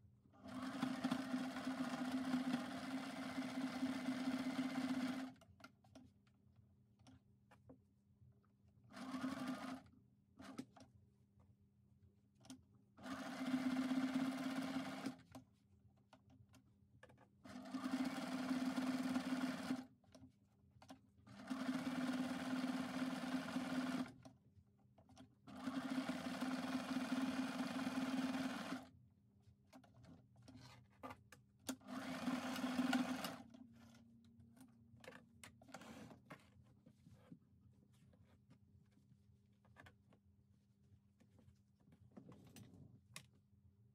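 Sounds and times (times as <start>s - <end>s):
sewing machine stitching: 0.5s - 5.4s, 9.0s - 9.8s, 13.0s - 15.2s, 17.5s - 19.9s, 21.3s - 24.2s, 25.5s - 28.9s, 31.7s - 33.6s.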